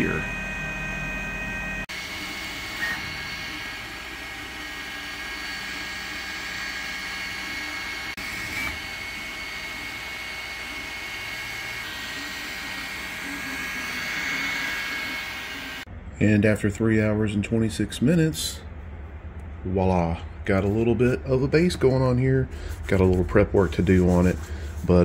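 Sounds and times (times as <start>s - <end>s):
stepper motor whine: 0.0s - 15.9s
cooling fan noise: 0.0s - 25.0s.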